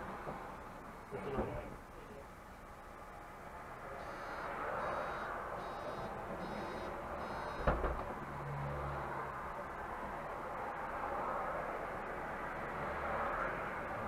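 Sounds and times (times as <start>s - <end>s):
bus door warning beeps: 4.0s - 8.0s
bus doors shutting with thump: 7.4s - 8.2s.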